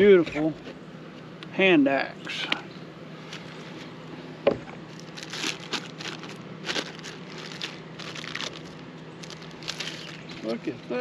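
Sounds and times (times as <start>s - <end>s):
plastic bag crinkling: 4.9s - 10.4s.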